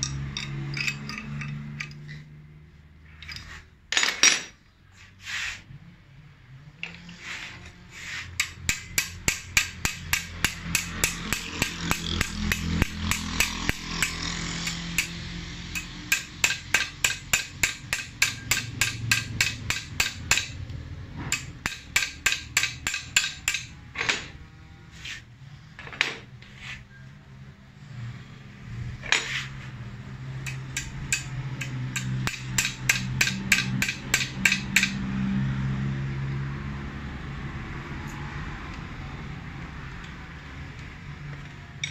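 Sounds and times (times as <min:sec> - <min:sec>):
spanner tapping on metal: 0:00.0 - 0:02.2, 0:08.4 - 0:24.3, 0:30.4 - 0:35.0.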